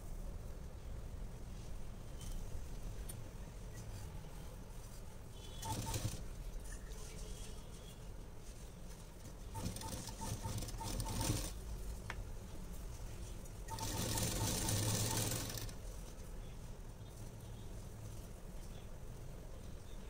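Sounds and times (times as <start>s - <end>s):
sewing machine stitching: 5.5s - 6.4s, 9.5s - 11.6s, 13.7s - 15.8s.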